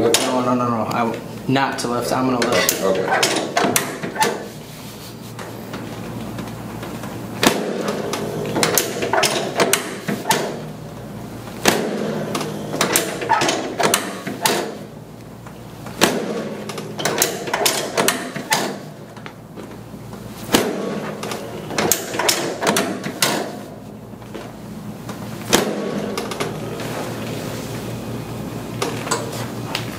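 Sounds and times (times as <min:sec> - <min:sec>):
steady low hum: 0:00.0 - 0:29.9
mechanical clicks and knocks: 0:07.8 - 0:10.6, 0:11.6 - 0:14.7, 0:16.7 - 0:18.8, 0:21.2 - 0:23.6.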